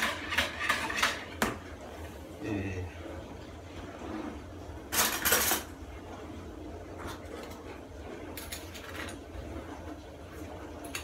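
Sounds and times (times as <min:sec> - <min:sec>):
cutlery rattling in drawer: 0:04.9 - 0:05.7.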